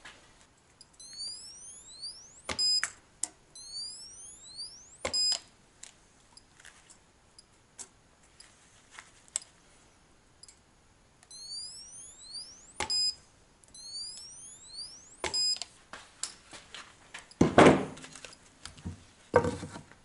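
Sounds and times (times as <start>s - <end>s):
rising electronic chirp: 1.0s - 2.8s, 3.6s - 5.4s, 11.3s - 15.6s
short beep: 1.0s - 2.9s, 3.6s - 5.4s, 11.3s - 13.2s, 13.8s - 15.6s.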